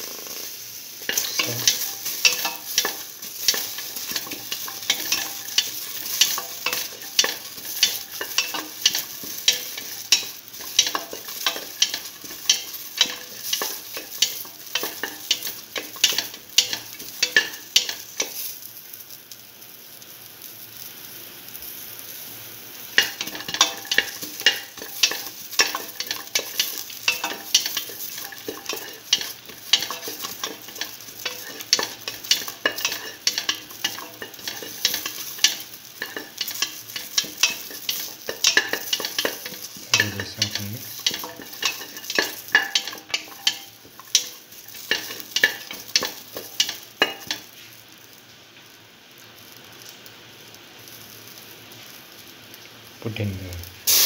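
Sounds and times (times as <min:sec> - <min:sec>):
vegetables sizzling in hot oil: 0:00.0 - 0:54.0
utensil scraping metal pan: 0:01.0 - 0:18.4, 0:23.0 - 0:47.5.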